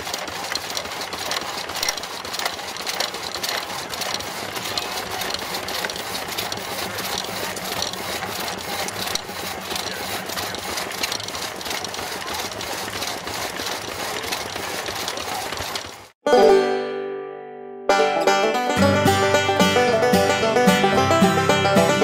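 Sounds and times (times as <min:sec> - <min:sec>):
machinery clattering: 0:00.0 - 0:16.2.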